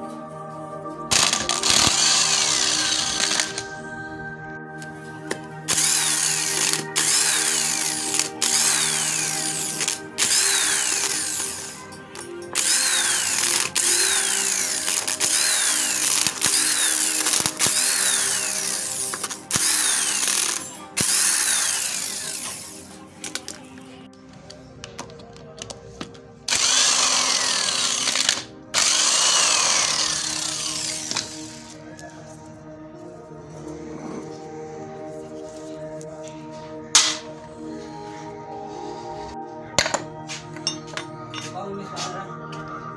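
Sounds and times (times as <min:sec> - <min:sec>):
electric impact wrench bursts: 0:01.1 - 0:03.7, 0:05.7 - 0:11.8, 0:12.6 - 0:22.9, 0:26.5 - 0:31.7.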